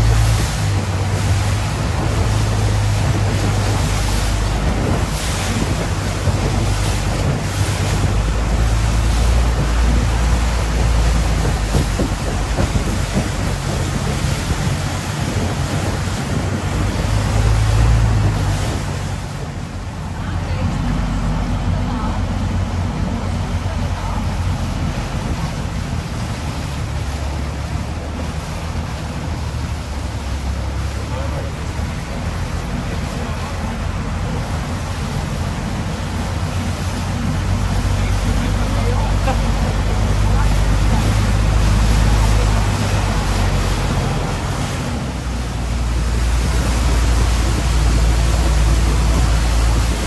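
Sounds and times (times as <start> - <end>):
boat engine running: 0.0 - 50.0
water rushing along hull: 0.0 - 50.0
wind on microphone: 0.0 - 50.0.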